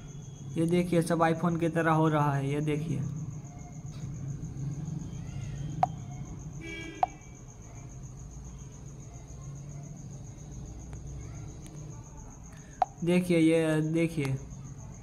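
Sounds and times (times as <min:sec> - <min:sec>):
steady low hum: 0:00.0 - 0:13.4.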